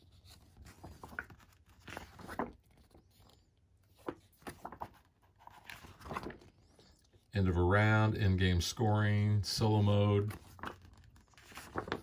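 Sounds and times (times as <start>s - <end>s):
book pages flipping: 0.0s - 7.3s, 9.9s - 12.0s.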